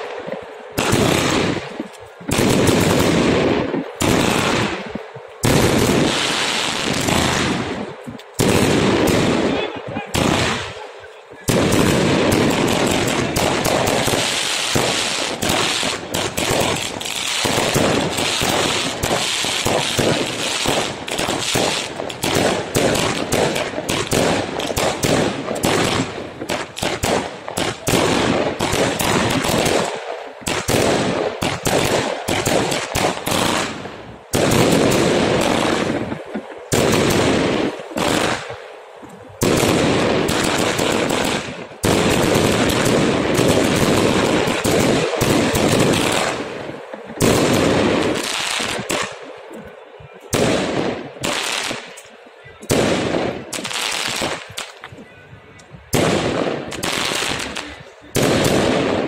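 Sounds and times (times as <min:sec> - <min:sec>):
fireworks bangs: 0:00.0 - 0:59.0.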